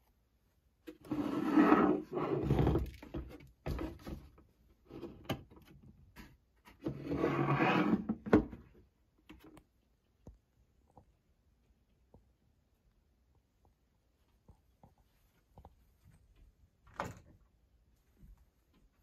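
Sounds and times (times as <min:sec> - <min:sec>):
hand scraping plastic bowl: 0:00.9 - 0:04.1, 0:06.2 - 0:08.4.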